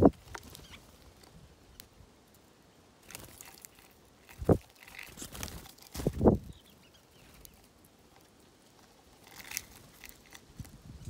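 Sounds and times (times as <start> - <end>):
soft fluttery rustles: 3.0 - 11.0.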